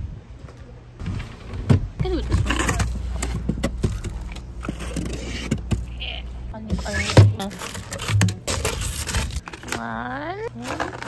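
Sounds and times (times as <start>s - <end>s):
freezer hum: 0.0s - 11.0s
plastic wrap rustling: 6.7s - 11.0s.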